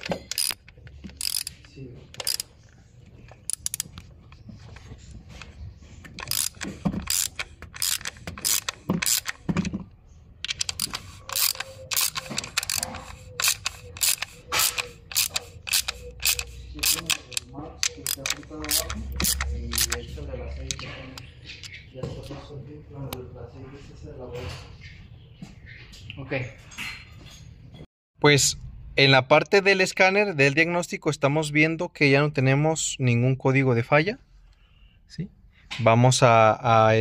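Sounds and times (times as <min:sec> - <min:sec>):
sharp mechanical clicks: 0:00.0 - 0:01.6, 0:02.2 - 0:02.5, 0:06.2 - 0:09.4, 0:10.4 - 0:20.9.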